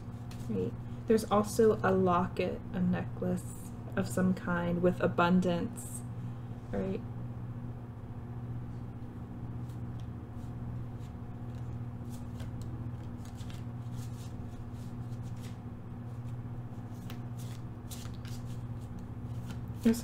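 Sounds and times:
low hum: 0:00.0 - 0:20.0
cards being shuffled: 0:00.1 - 0:00.5, 0:09.6 - 0:20.0.

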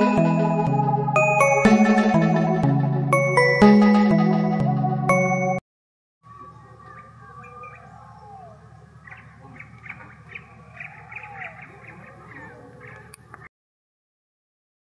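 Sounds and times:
rising and falling bird calls: 0:06.3 - 0:13.5
small birds chirping: 0:06.3 - 0:13.5.

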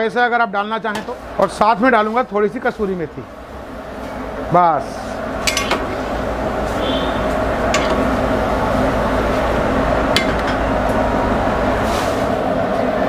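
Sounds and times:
metal ladle clinking on pan: 0:05.4 - 0:05.8, 0:07.7 - 0:08.1.

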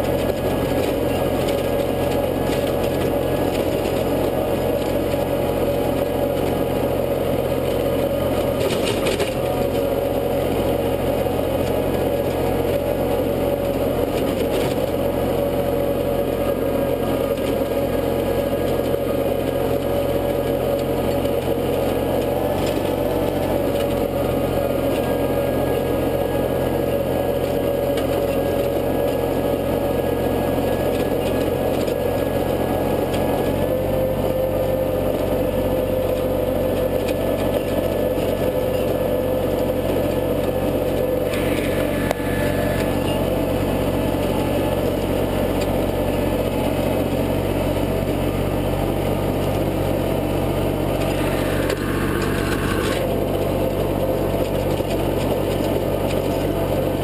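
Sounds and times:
tractor engine under load: 0:00.0 - 0:57.0.

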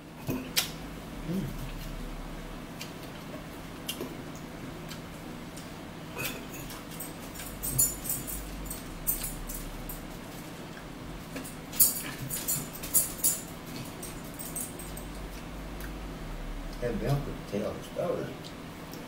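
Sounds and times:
forks clinking on plates: 0:06.2 - 0:10.1, 0:11.4 - 0:15.2.

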